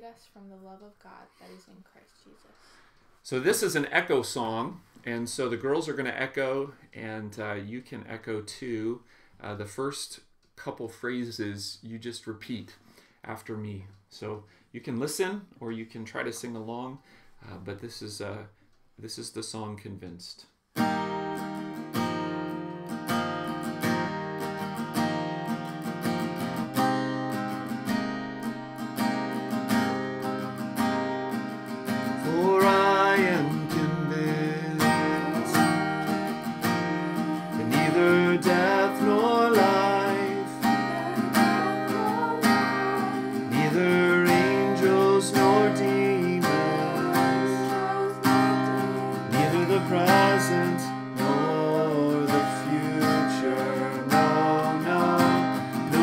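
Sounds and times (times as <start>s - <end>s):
acoustic guitar strumming: 20.8s - 56.0s
man singing: 32.0s - 56.0s
girls singing: 32.2s - 56.0s.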